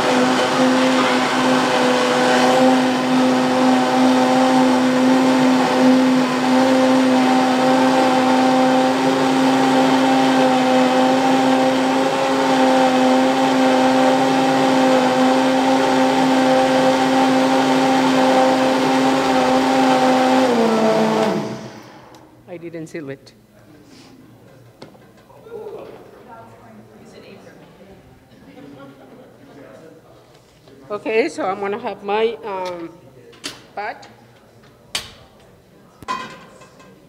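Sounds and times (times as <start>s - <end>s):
blender whirring: 0.0s - 22.3s.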